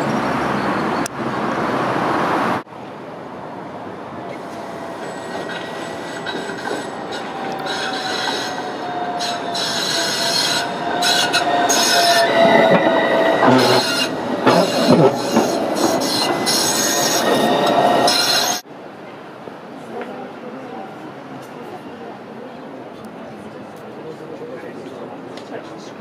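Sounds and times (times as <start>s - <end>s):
tram passing with whine: 0.0s - 25.5s
wheels knocking and scraping on rails: 4.3s - 18.6s.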